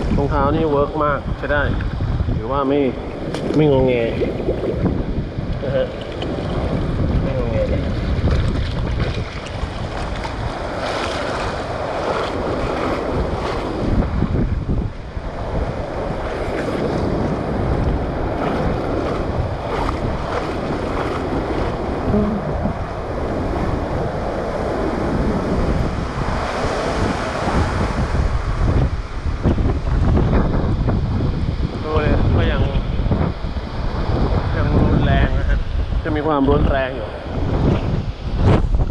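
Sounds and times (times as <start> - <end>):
wind buffeting microphone: 0.0 - 38.9
wading through floodwater: 2.6 - 29.4.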